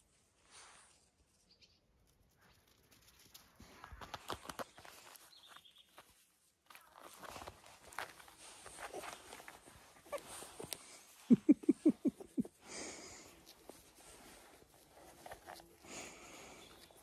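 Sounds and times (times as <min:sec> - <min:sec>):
puppy rustling and scuffing: 0:02.4 - 0:11.4.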